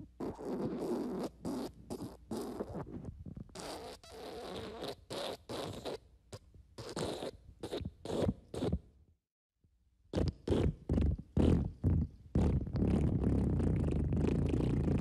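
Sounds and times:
fart sound effects: 10.2s - 15.0s.

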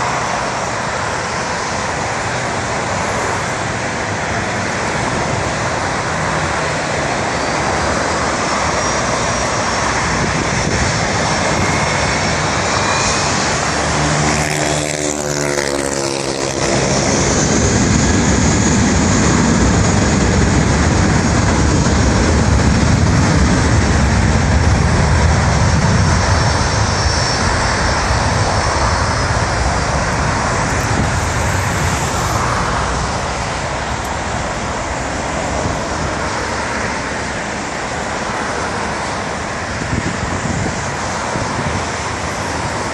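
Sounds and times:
road traffic hiss: 0.0s - 21.8s, 25.1s - 42.9s
jet engines rumbling and whining: 0.0s - 42.9s.

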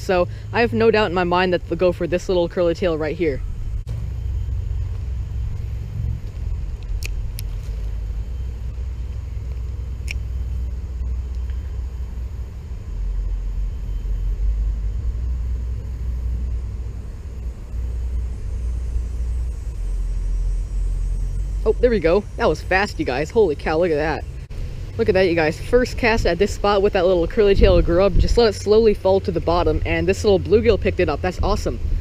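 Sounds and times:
wind buffeting microphone: 3.2s - 10.0s, 22.7s - 32.0s
faint sharp clicks: 9.5s - 10.2s.

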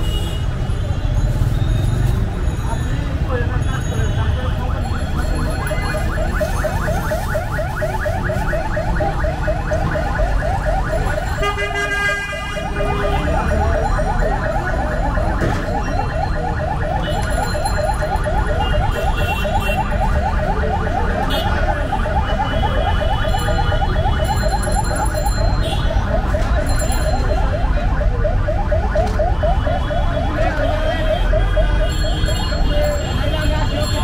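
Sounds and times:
horn sounding: 11.2s - 13.9s
electronic alarm warbling: 12.3s - 33.2s.

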